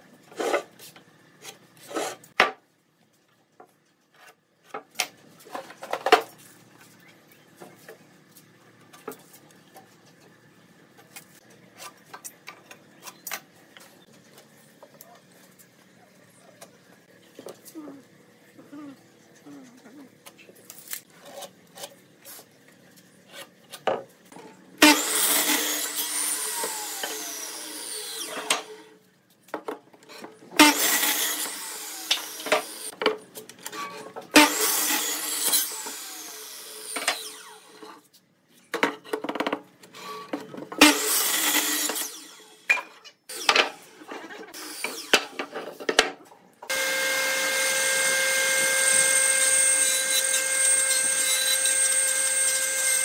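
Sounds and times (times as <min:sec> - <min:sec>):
electric miter saw cutting wood: 0:24.8 - 0:29.0, 0:30.6 - 0:33.0, 0:34.3 - 0:38.0, 0:40.8 - 0:45.6, 0:46.7 - 0:53.0
jointer-planer running: 0:46.7 - 0:53.0.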